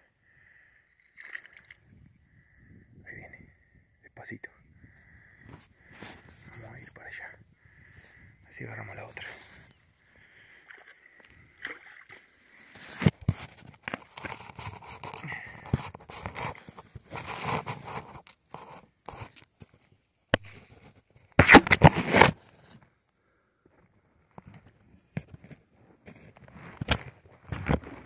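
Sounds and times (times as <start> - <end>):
fingers rubbing microphone: 13.0 - 19.4.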